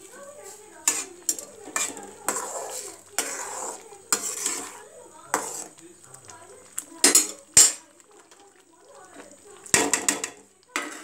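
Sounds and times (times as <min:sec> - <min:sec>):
metal ladle scraping a pot: 0:00.3 - 0:05.8, 0:07.0 - 0:07.9, 0:09.7 - 0:11.0.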